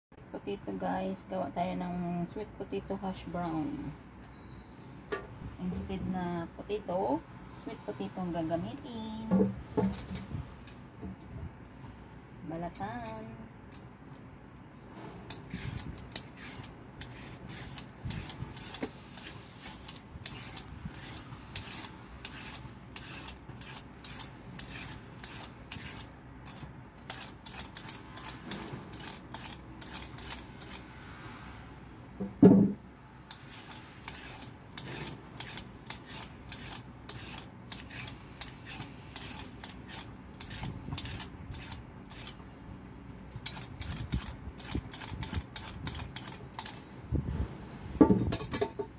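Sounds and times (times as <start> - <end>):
blade scraping potato skin: 15.3 - 30.8, 33.3 - 42.4, 43.3 - 46.9
low knock: 32.2 - 32.8.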